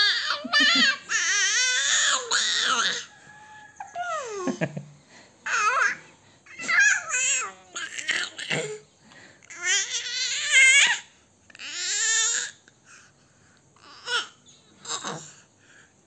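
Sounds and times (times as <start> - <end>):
infant babbling and cooing: 0.0 - 3.1, 5.5 - 8.8, 9.5 - 13.0, 13.8 - 15.4.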